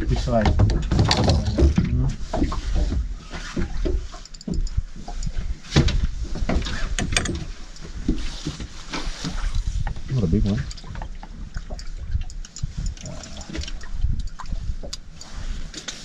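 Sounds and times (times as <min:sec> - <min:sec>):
fishing gear knocking on boat: 0:00.4 - 0:04.8.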